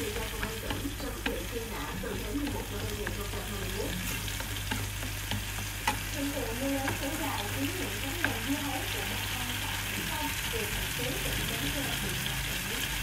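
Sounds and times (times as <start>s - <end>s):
spatula clicking against pan: 0.0s - 9.4s
sauce sizzling in frying pan: 0.0s - 13.0s.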